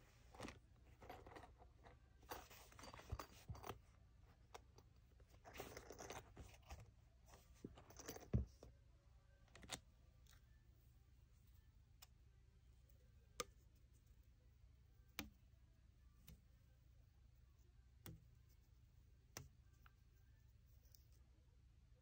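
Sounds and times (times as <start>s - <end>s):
stationery rustling and crinkling: 0.0s - 8.8s.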